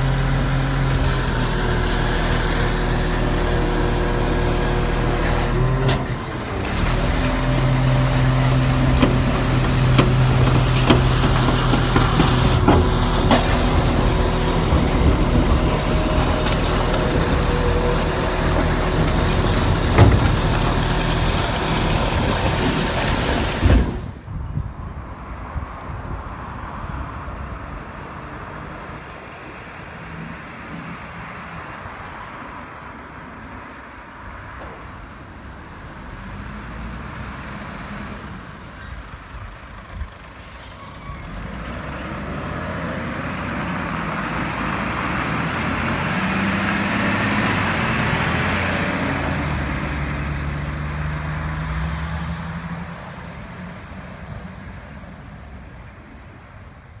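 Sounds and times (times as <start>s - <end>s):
truck diesel engine driving past: 0.0s - 24.2s, 35.6s - 53.8s.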